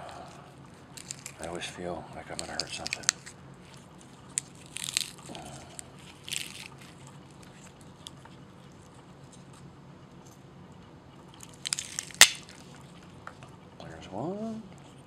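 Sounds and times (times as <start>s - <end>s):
bulb crackling and crunching: 0.0s - 9.4s, 11.3s - 13.1s.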